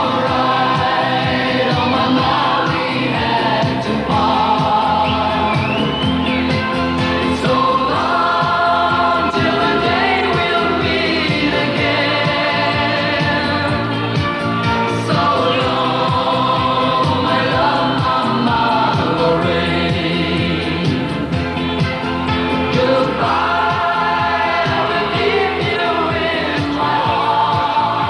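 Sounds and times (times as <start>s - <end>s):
band with steady beat: 0.0s - 28.0s
man singing with backing vocals: 15.1s - 21.1s, 22.7s - 28.0s.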